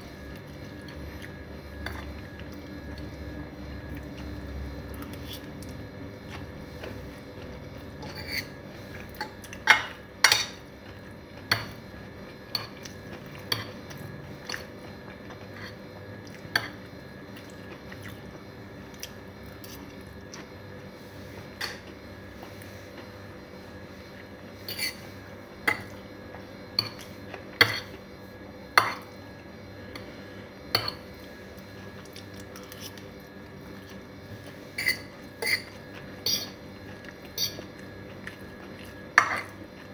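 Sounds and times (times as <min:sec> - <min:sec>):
steady low hum: 0:00.0 - 0:39.9
fork scraping against plate: 0:08.0 - 0:08.6, 0:24.6 - 0:25.1, 0:34.8 - 0:36.6, 0:37.3 - 0:37.6.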